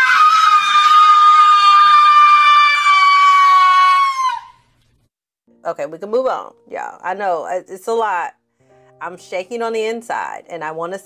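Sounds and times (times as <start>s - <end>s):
person screaming high note: 0.0s - 4.6s.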